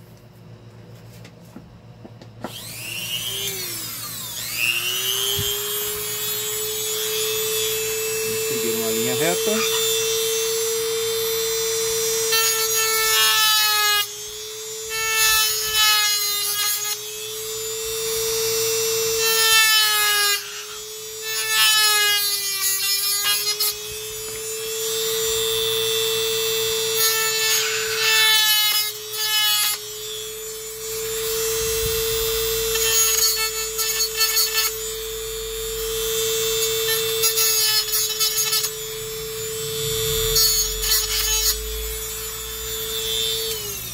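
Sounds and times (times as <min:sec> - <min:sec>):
cutting disc grinding rasp: 0:02.4 - 0:10.7, 0:35.8 - 0:43.9
rotary tool whining: 0:02.4 - 0:43.9.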